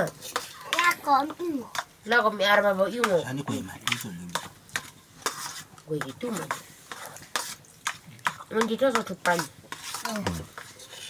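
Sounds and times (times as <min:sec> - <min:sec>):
utensil scraping a pan: 0:00.0 - 0:01.1, 0:03.0 - 0:11.0
food sizzling in a pan: 0:00.0 - 0:11.0.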